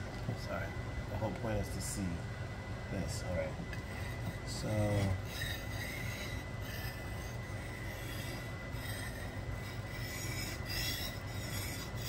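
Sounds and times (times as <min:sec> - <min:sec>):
knife scraping on whetstone: 0:03.8 - 0:12.0.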